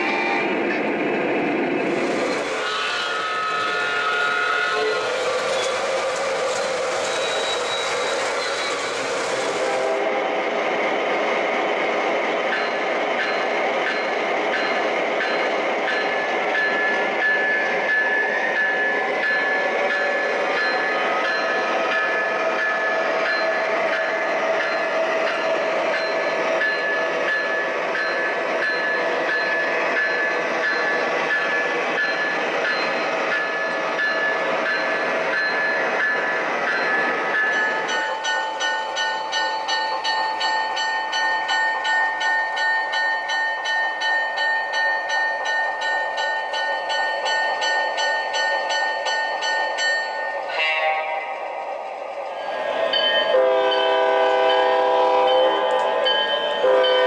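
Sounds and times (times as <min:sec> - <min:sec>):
model locomotive horn blasts: 0:02.5 - 0:05.2, 0:50.5 - 0:51.4, 0:53.3 - 0:57.0.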